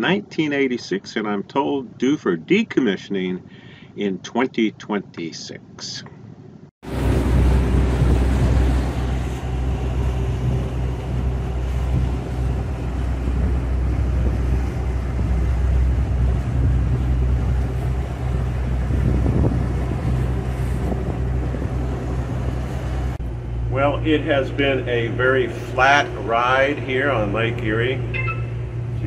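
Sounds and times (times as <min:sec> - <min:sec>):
wind buffeting microphone: 0:06.8 - 0:23.7
boat engines droning: 0:06.8 - 0:29.0
water rushing along hull: 0:06.8 - 0:29.0.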